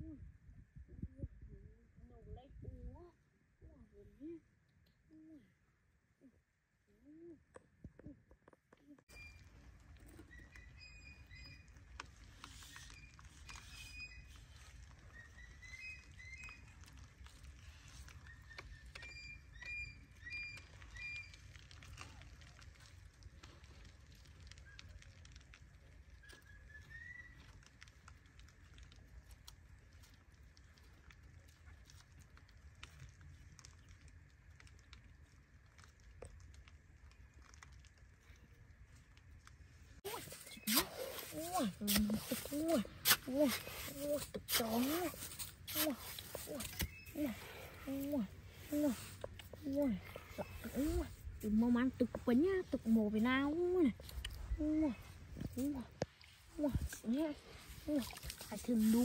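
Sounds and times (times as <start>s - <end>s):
faint low rumble: 0.0s - 18.4s, 27.2s - 59.0s
small ticks and clicks: 7.5s - 40.6s, 45.1s - 59.0s.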